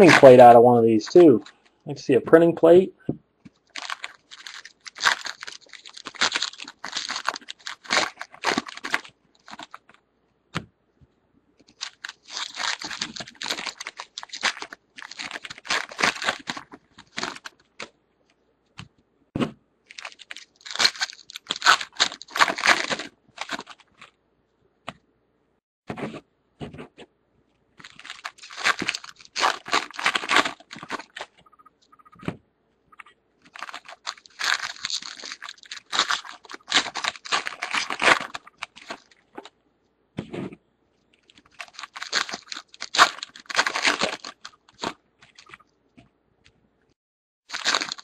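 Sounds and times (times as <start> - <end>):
foil wrappers crinkling and tearing: 0.0 - 1.3, 3.6 - 10.0, 11.7 - 17.9, 19.9 - 24.1, 27.8 - 31.4, 33.4 - 39.5, 41.2 - 45.6, 47.5 - 48.0.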